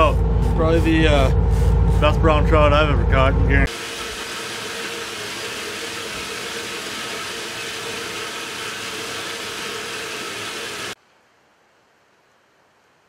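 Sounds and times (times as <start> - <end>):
machine running hiss and hum: 3.6 - 11.0.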